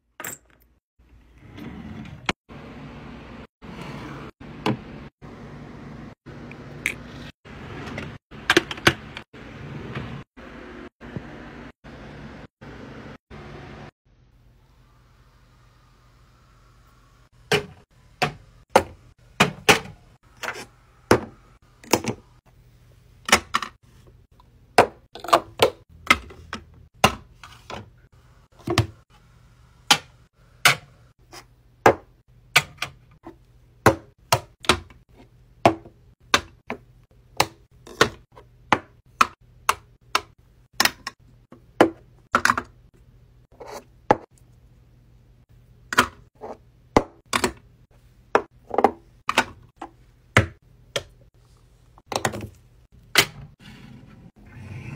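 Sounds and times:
bottles clacking on plastic shelves: 0:48.3 - 0:51.2, 0:52.1 - 0:53.6.

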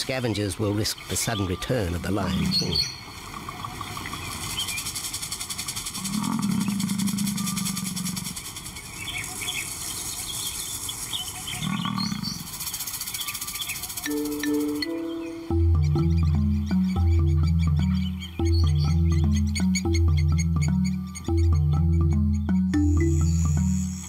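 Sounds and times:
birds chirping: 0:00.0 - 0:24.0
lion roaring: 0:06.0 - 0:08.3, 0:11.6 - 0:12.4
high-pitched background hum: 0:12.1 - 0:24.0.

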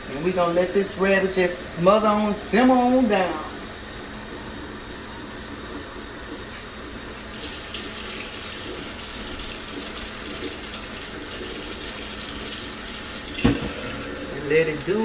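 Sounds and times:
water pouring into a pan: 0:07.3 - 0:13.7.

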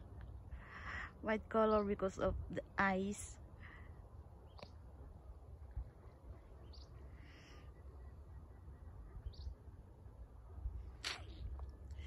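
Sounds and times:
faint low rumble: 0:00.0 - 0:12.0
high bird chirps: 0:09.2 - 0:09.6.

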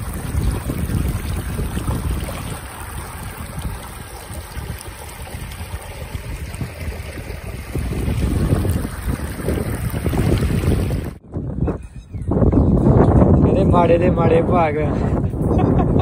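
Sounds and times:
floodwater rushing: 0:00.0 - 0:11.2
wind buffeting microphone: 0:00.0 - 0:16.0.

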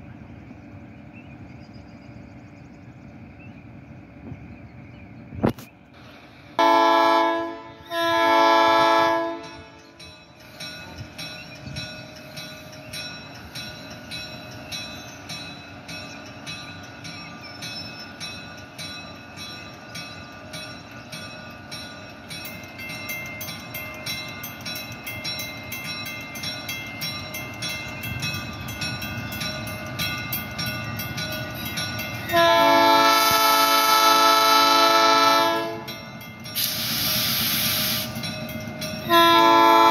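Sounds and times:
locomotive engine running: 0:00.0 - 0:39.9
locomotive air horn blasts: 0:06.6 - 0:09.8, 0:32.3 - 0:35.9, 0:39.1 - 0:39.9.

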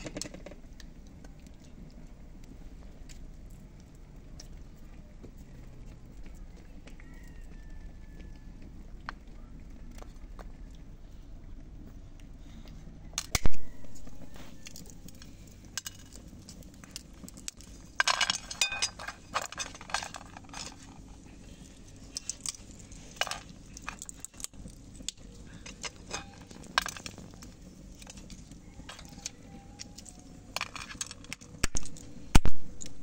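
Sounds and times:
walnut shells cracking: 0:13.2 - 0:33.0
pieces clinking on metal plate: 0:18.0 - 0:20.8.

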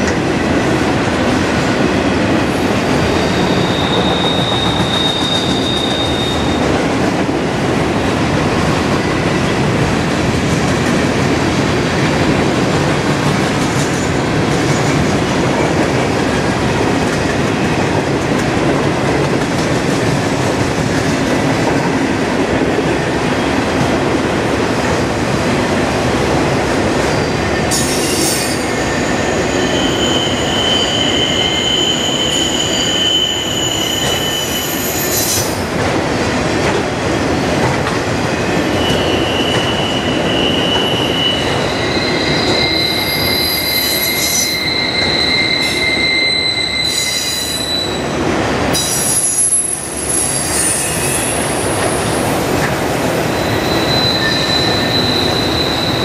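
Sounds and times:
freight train rolling past: 0:00.0 - 0:56.0
high-pitched wheel squeals: 0:03.1 - 0:06.6, 0:27.1 - 0:35.5, 0:38.7 - 0:48.1, 0:48.8 - 0:51.7, 0:53.4 - 0:56.0.

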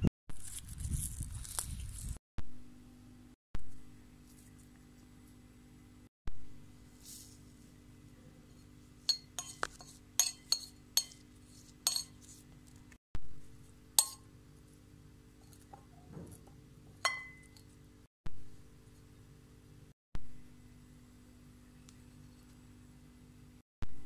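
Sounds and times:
knife clinking on ceramic plate: 0:09.1 - 0:11.2, 0:11.8 - 0:12.2, 0:14.0 - 0:14.2, 0:17.0 - 0:17.7.

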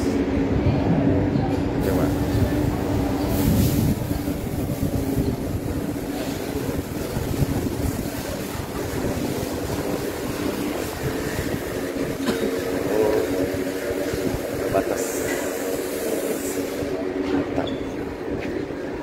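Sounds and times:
wind rumbling on microphone: 0:00.2 - 0:15.1.

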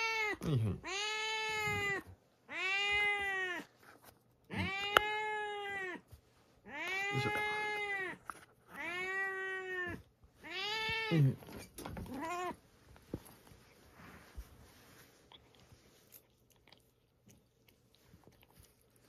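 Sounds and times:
cat meowing: 0:00.0 - 0:03.7, 0:04.5 - 0:06.0, 0:06.6 - 0:11.4, 0:12.0 - 0:12.6.

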